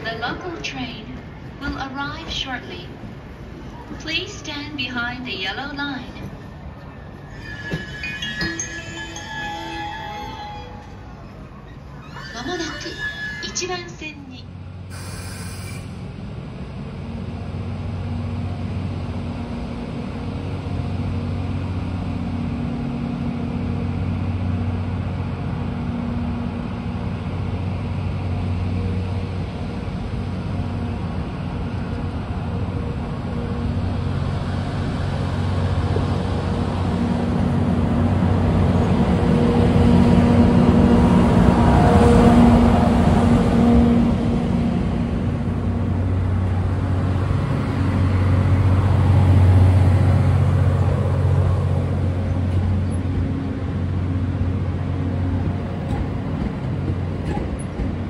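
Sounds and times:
train running hum: 0:00.0 - 0:58.0.

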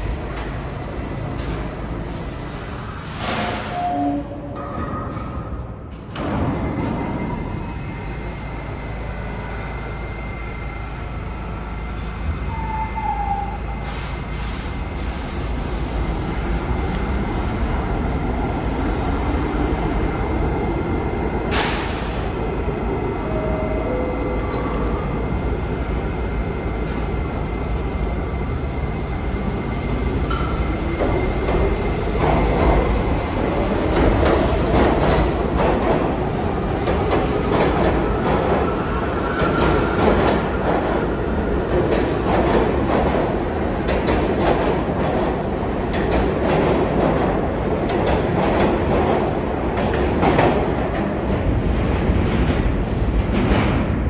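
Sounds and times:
subway train rumble: 0:00.0 - 0:54.0.

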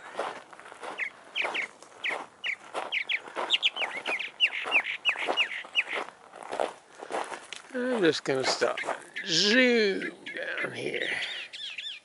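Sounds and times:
footsteps on gravel: 0:00.0 - 0:09.7
birds chirping: 0:00.0 - 0:12.0.

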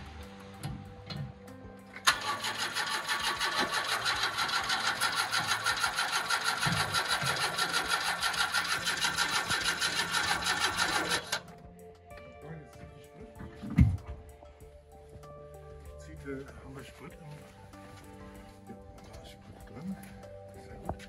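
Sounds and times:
starter motor cranking engine: 0:02.0 - 0:11.5.

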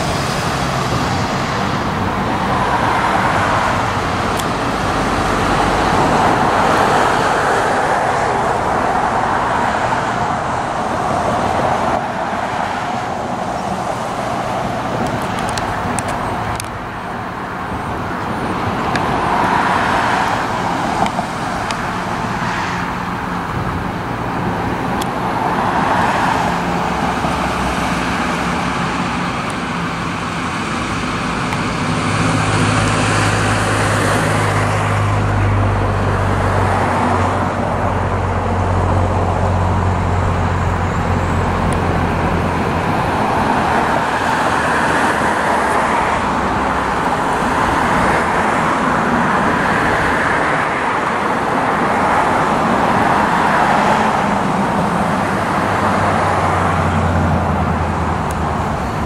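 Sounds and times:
cars passing: 0:00.0 - 0:59.0
large vehicle engine hum: 0:00.0 - 0:59.0.

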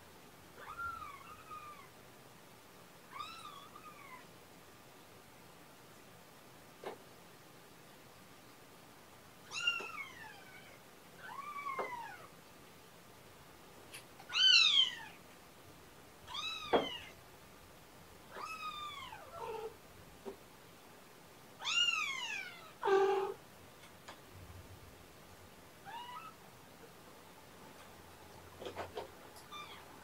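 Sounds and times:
kitten meowing: 0:09.5 - 0:12.3, 0:14.3 - 0:15.2, 0:18.3 - 0:19.7.

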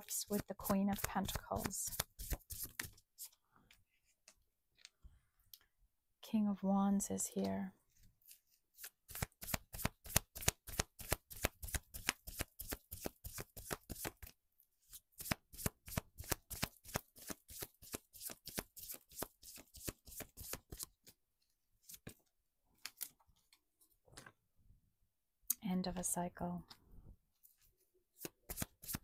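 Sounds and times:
cards being shuffled: 0:00.2 - 0:03.4, 0:08.2 - 0:14.3, 0:15.2 - 0:21.1, 0:28.2 - 0:29.0.

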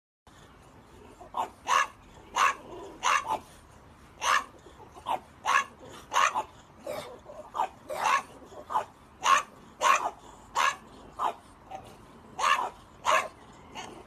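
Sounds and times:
dog barking: 0:01.3 - 0:03.5, 0:04.2 - 0:14.0.

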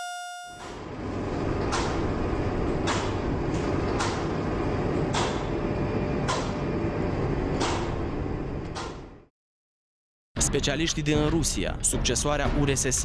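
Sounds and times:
low mechanical rumble: 0:00.8 - 0:09.2.

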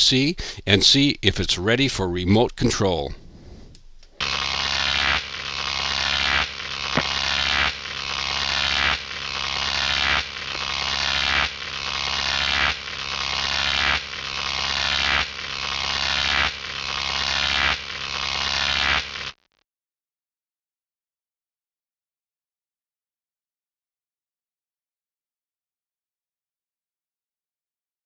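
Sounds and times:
buzzing hissy electronic swell: 0:00.0 - 0:19.4.

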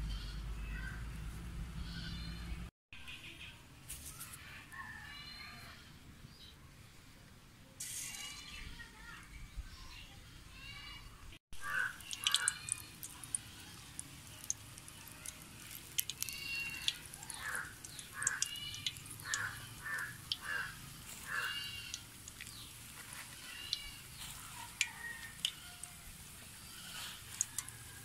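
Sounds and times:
food sizzling in hot oil: 0:11.6 - 0:28.0
oil crackling pops: 0:12.0 - 0:27.8.

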